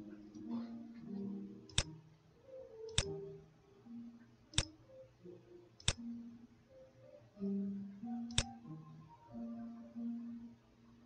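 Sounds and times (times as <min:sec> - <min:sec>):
soft background music: 0:00.0 - 0:11.0
computer mouse clicks: 0:01.7 - 0:02.0, 0:02.9 - 0:03.1, 0:05.8 - 0:06.0, 0:08.3 - 0:08.6.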